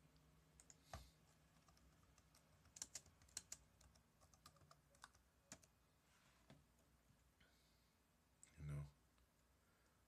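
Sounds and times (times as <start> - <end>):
typing on computer keyboard: 1.5 - 5.7.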